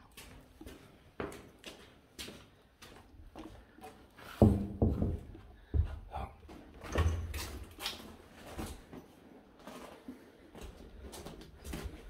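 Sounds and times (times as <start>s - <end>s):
dull thuds and knocks: 4.4s - 5.9s.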